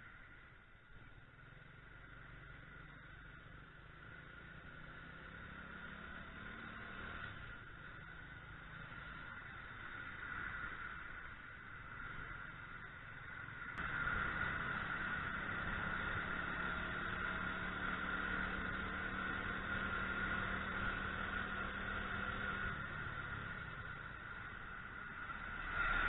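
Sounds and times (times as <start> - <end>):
road noise: 0.0 - 26.0.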